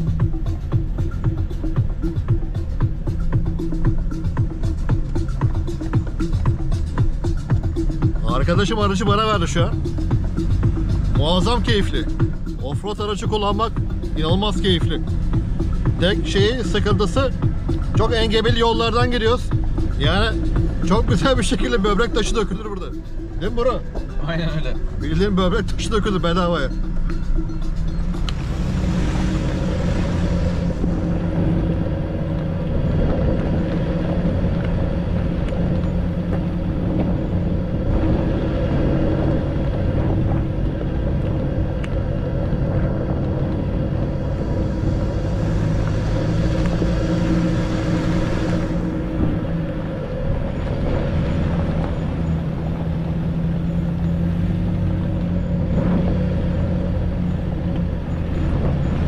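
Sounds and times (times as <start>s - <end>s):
truck engine running under load: 24.8s - 59.0s.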